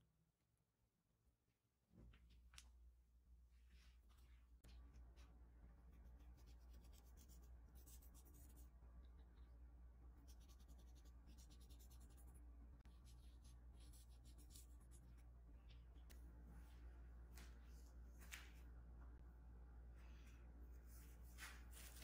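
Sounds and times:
low hum: 0:04.1 - 0:22.0.

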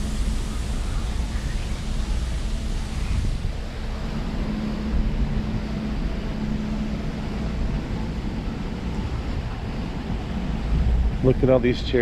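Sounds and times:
ship machinery hum: 0:00.0 - 0:12.0
wind buffeting microphone: 0:00.0 - 0:12.0.

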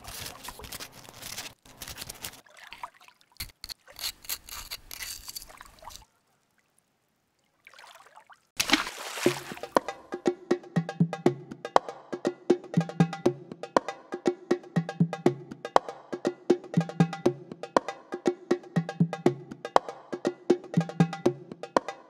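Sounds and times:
paper rustling against glass: 0:00.0 - 0:02.4, 0:03.4 - 0:06.1.

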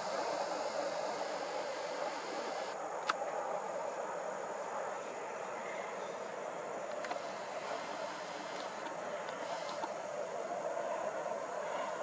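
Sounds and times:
insect trill: 0:00.0 - 0:02.8
low rushing background: 0:00.0 - 0:03.4.

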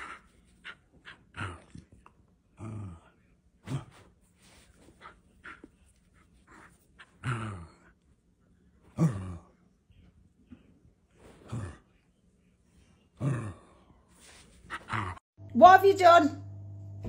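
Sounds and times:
dog grumbling: 0:01.1 - 0:04.1, 0:07.0 - 0:07.9.

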